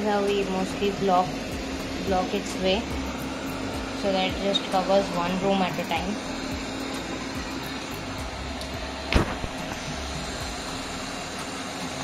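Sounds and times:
robot vacuum motor running: 0:00.0 - 0:12.0
sharp knock: 0:09.1 - 0:09.6.

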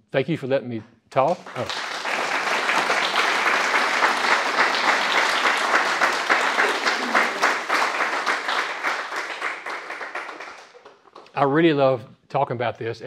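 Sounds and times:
audience applauding: 0:01.2 - 0:11.3.

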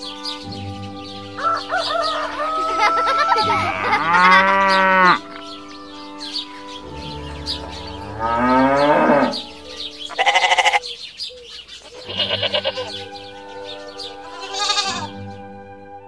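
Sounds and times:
light background music: 0:00.0 - 0:16.0
sheep bleating: 0:02.7 - 0:05.3, 0:10.1 - 0:10.8, 0:11.8 - 0:13.1, 0:14.2 - 0:15.2.

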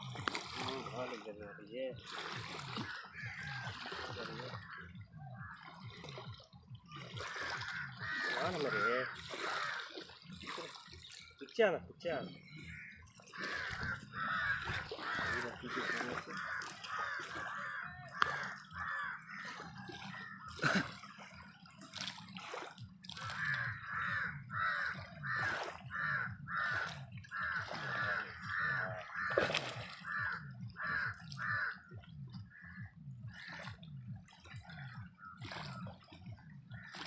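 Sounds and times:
water: 0:00.0 - 0:37.0
bird calling: 0:06.8 - 0:11.4, 0:12.1 - 0:20.6, 0:23.2 - 0:37.0.

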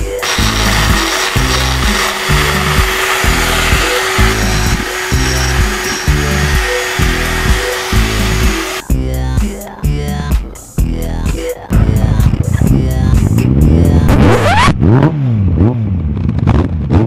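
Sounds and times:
background music with beat: 0:00.0 - 0:14.2
rotary tool grinding metal: 0:00.2 - 0:08.8.

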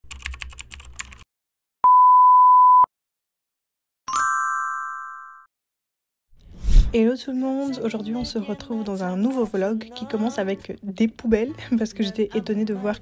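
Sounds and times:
bell-like ding: 0:04.1 - 0:05.5.

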